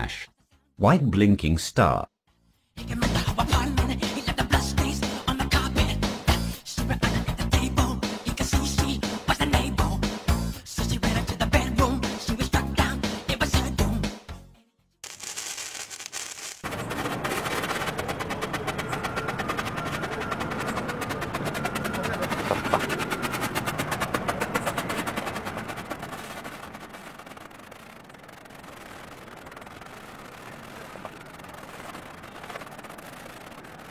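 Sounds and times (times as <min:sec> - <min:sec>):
firework fountain hissing and crackling: 0:15.0 - 0:17.2.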